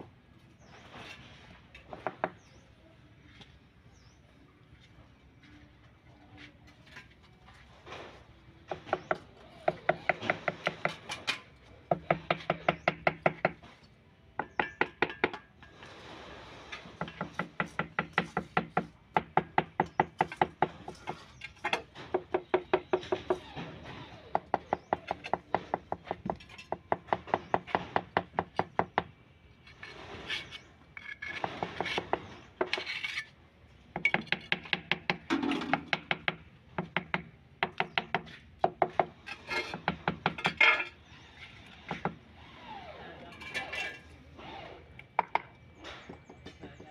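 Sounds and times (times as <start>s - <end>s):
tool tapping on ceramic tiles: 14.4s - 15.5s.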